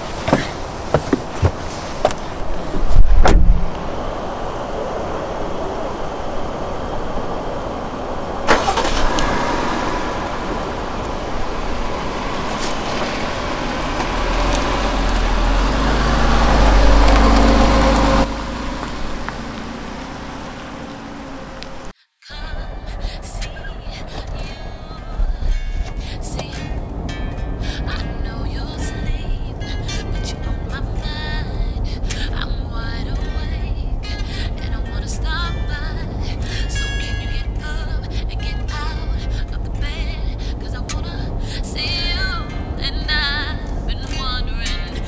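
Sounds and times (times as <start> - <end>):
deep engine rumble: 0.0 - 45.0
road traffic: 0.0 - 45.0
heavy low thump: 2.7 - 4.0.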